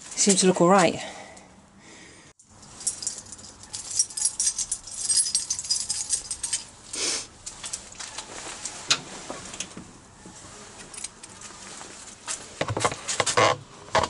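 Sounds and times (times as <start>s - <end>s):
metal tools clinking and rattling: 2.4s - 8.3s.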